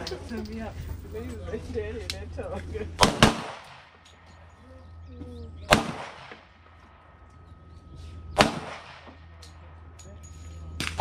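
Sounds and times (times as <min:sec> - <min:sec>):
pistol shots with echo: 0:03.0 - 0:04.2, 0:05.6 - 0:06.8, 0:08.4 - 0:10.0.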